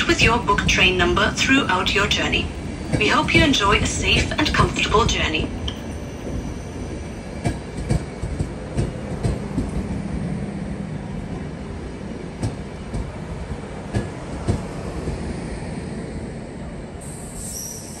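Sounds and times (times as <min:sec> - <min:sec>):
train coaches rumbling: 0:00.0 - 0:18.0
high wheel squeal: 0:17.2 - 0:18.0.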